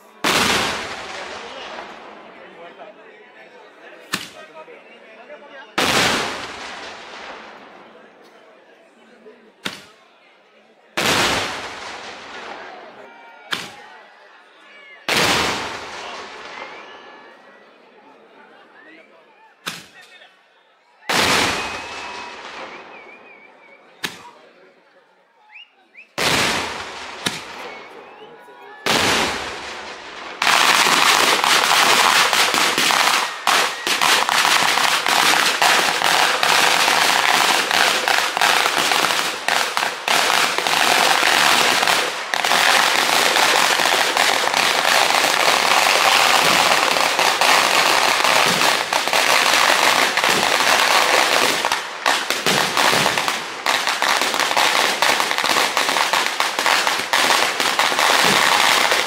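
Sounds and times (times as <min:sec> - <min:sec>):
firecrackers banging and crackling: 0:00.0 - 0:02.2, 0:04.1 - 0:04.4, 0:05.8 - 0:07.9, 0:11.0 - 0:12.8, 0:15.1 - 0:16.9, 0:21.1 - 0:23.3, 0:26.2 - 0:28.0, 0:28.8 - 0:59.0.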